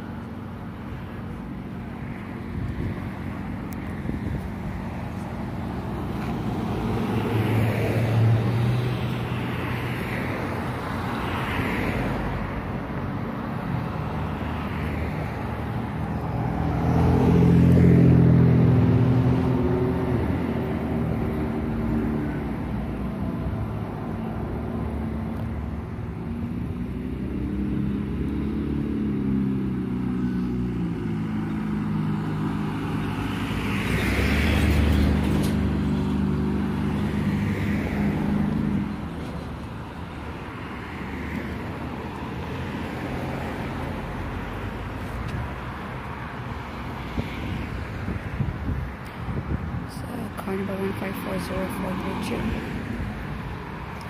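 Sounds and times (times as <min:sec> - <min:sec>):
road traffic hum: 0:00.0 - 0:54.0
vehicle engine passing: 0:15.7 - 0:25.8.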